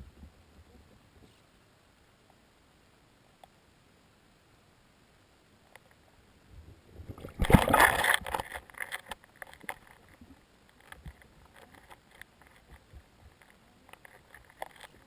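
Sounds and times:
underwater rush of churned water: 7.0s - 8.4s.

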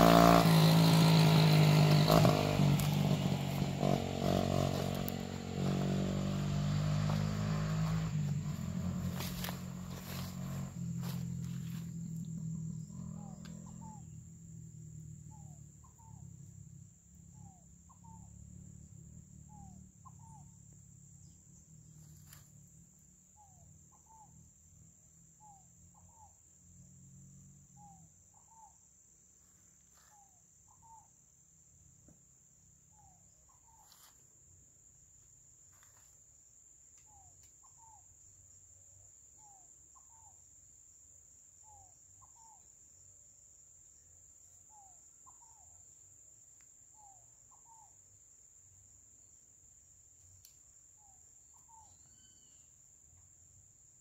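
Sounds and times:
high-pitched insect buzz: 0.0s - 14.2s, 51.6s - 52.9s.

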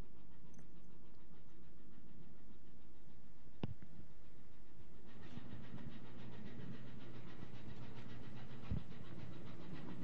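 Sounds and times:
regular engine clatter: 4.9s - 10.0s.

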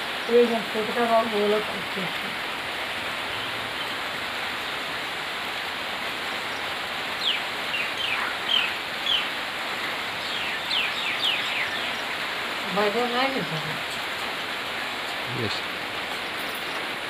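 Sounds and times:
rain hiss: 0.0s - 17.0s
bird chirping: 6.4s - 9.4s, 10.2s - 12.3s.

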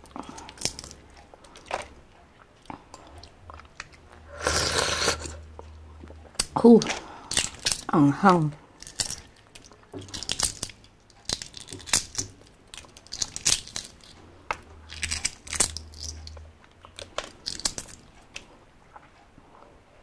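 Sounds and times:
eggshell cracking and peeling: 0.0s - 2.0s, 6.2s - 8.0s, 8.7s - 18.5s.

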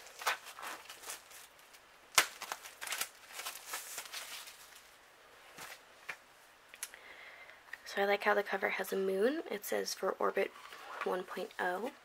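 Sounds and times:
packaging rustling: 0.0s - 5.0s.

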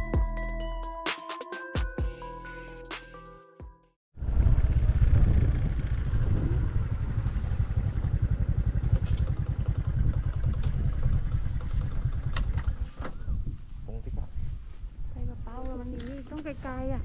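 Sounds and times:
motor scooter engine rumble: 4.2s - 13.5s
wind on microphone: 4.2s - 17.0s.

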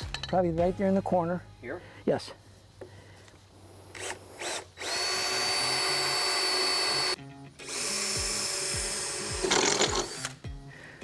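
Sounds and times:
cordless drill whining: 3.9s - 10.4s.

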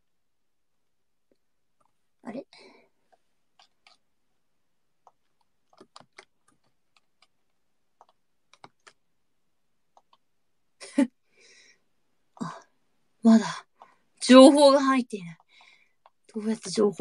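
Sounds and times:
keyboard keys clicking: 5.0s - 7.4s, 8.0s - 9.0s
breathy noise: 11.2s - 14.2s.

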